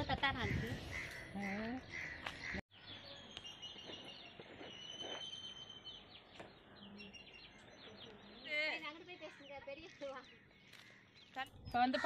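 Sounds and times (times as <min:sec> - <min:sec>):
birds chirping and calling: 0:00.0 - 0:12.0.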